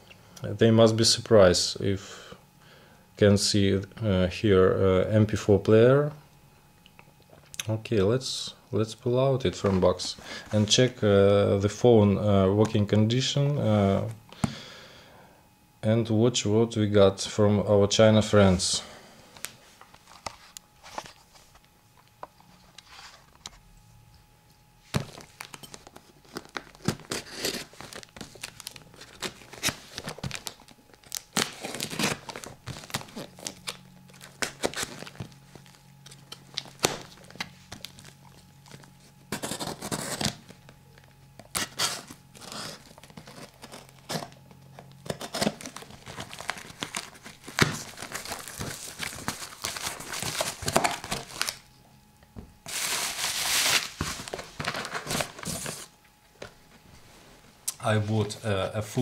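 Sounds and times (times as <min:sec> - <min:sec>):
wrapping tearing and crinkling: 0:25.0 - 0:51.7, 0:52.6 - 0:56.0.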